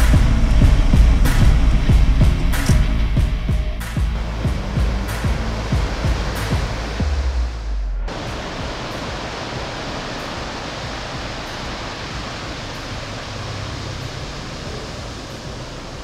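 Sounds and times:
waves breaking on pebble beach: 8.1 - 16.0.

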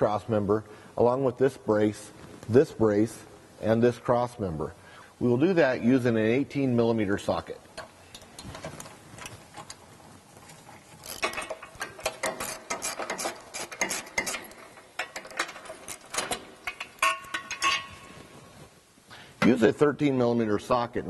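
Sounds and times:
metallic rings: 11.0 - 18.4.

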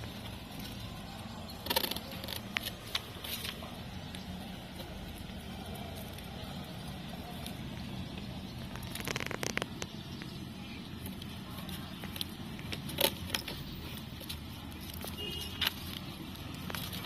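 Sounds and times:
hamsters crunching biscuit: 4.4 - 9.9.

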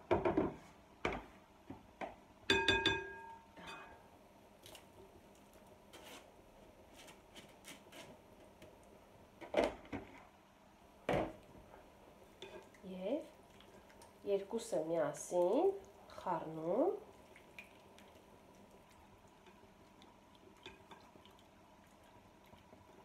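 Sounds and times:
metal clinking against glass: 2.5 - 3.9
spatula scraping: 5.9 - 6.3.

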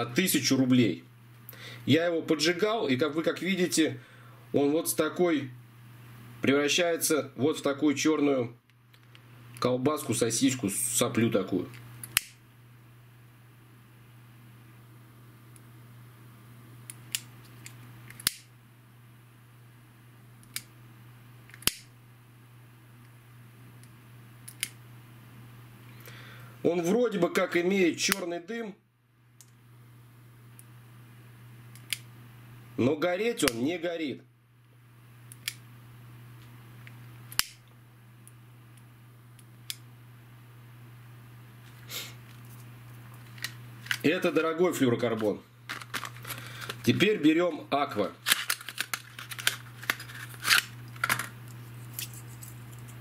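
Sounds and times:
steady low hum: 0.0 - 53.0
plastic lighter clicks: 37.3 - 37.6.

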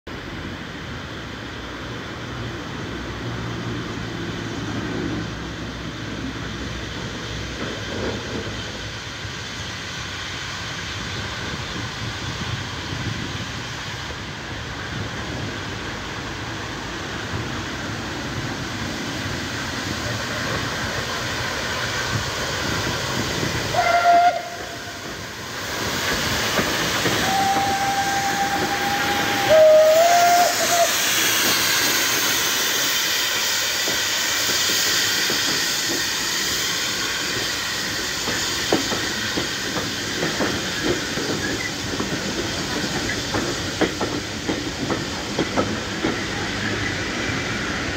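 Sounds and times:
steam locomotive running: 0.1 - 47.9
steam hissing: 0.2 - 47.9
steam whistle blasts: 23.7 - 25.1, 27.2 - 31.1.

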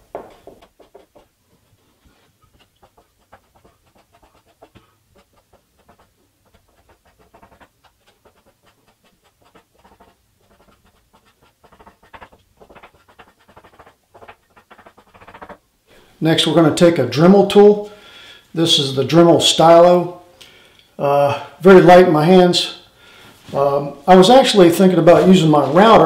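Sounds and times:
pencil scratching: 0.3 - 15.6.

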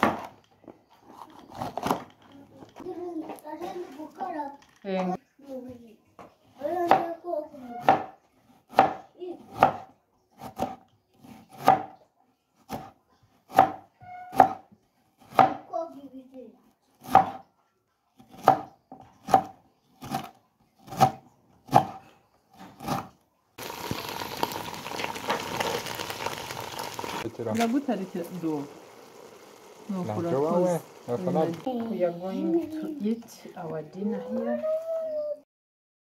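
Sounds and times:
knife slicing onion: 7.7 - 12.0, 12.6 - 14.6, 17.0 - 17.5, 18.2 - 23.2.

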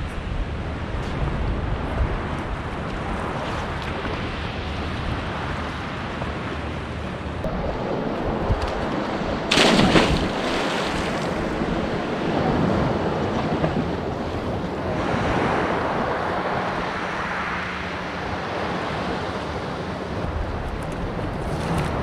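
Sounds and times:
sea noise: 0.0 - 22.0
wind on microphone: 0.0 - 22.0
loud splash of diver: 7.5 - 11.7.

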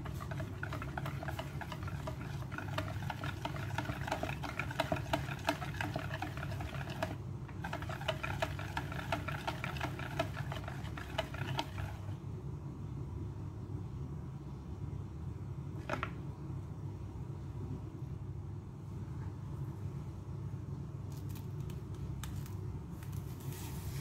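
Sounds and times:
whisk clicking against bowl: 0.0 - 12.1.

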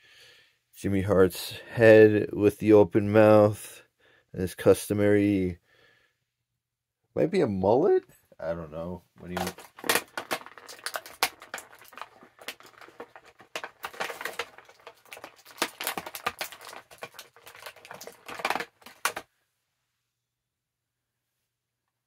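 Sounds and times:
plastic packaging crinkling and clicking: 9.2 - 19.3.

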